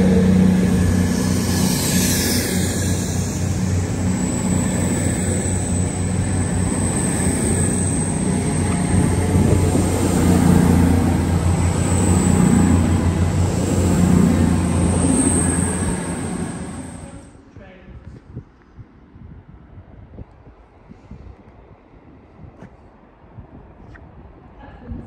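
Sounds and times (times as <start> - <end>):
diesel train engine drone: 0.0 - 17.5.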